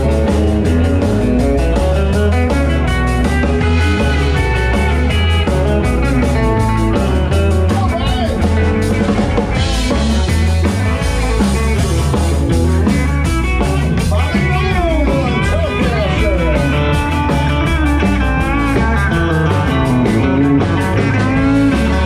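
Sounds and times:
bass line: 0.0 - 22.0
drum kit: 0.0 - 22.0
electric guitar: 0.0 - 22.0.

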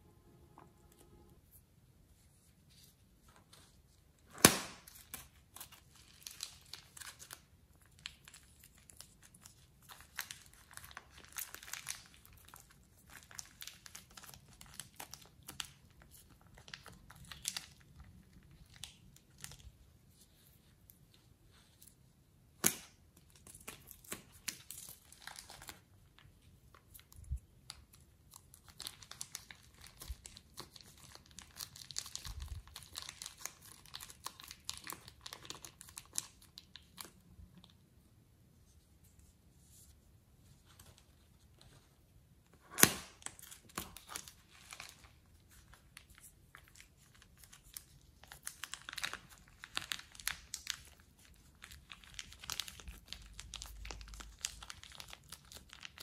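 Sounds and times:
plastic bags crinkling: 43.2 - 56.0.

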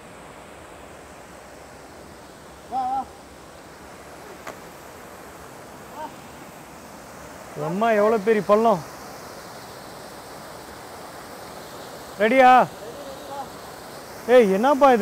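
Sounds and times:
river water rushing: 0.0 - 15.0
person calling: 2.7 - 3.2, 5.9 - 6.2, 12.7 - 13.5.

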